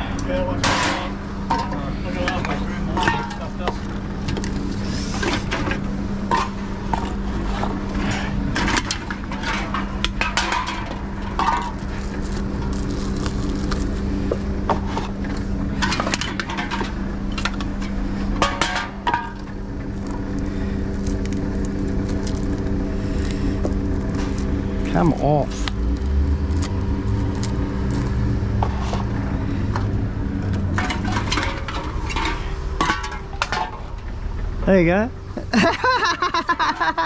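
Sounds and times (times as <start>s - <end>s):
vending machine humming: 0.0s - 37.0s
bottles clunking and clattering: 30.6s - 34.0s.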